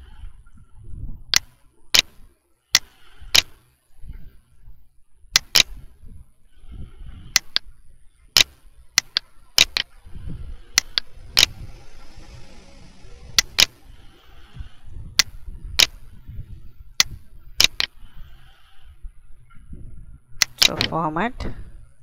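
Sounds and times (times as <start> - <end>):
computer mouse clicking: 1.3 - 2.2, 2.8 - 3.6, 5.4 - 5.8, 7.3 - 7.7, 8.4 - 9.9, 10.8 - 11.6, 13.4 - 13.8, 15.2 - 16.0, 17.0 - 18.0, 20.4 - 21.0.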